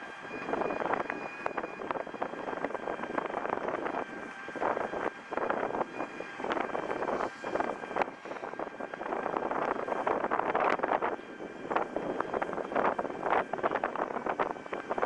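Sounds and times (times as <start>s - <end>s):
traffic noise: 0.0s - 15.0s
wind on microphone: 0.1s - 15.0s.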